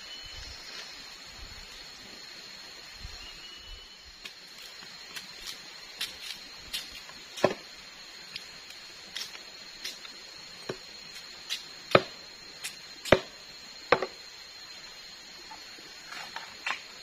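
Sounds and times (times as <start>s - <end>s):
machete chopping palm stalk: 6.8s - 7.6s, 11.5s - 14.2s.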